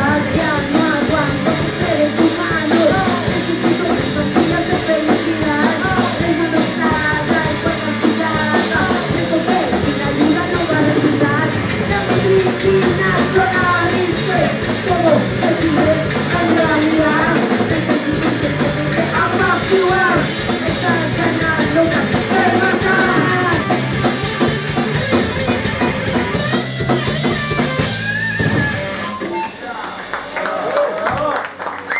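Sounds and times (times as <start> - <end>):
woman singing lead vocal: 0.0 - 23.8
bass guitar: 0.0 - 31.9
drum kit: 0.0 - 31.9
electric guitar: 0.0 - 31.9.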